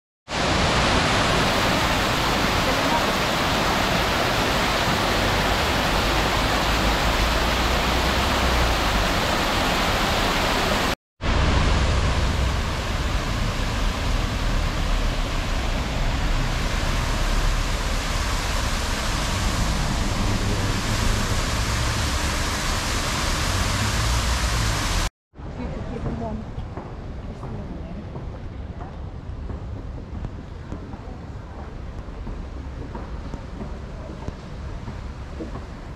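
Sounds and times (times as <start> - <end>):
fountain water splashing: 0.3 - 25.1
steady low rumble: 11.2 - 23.1.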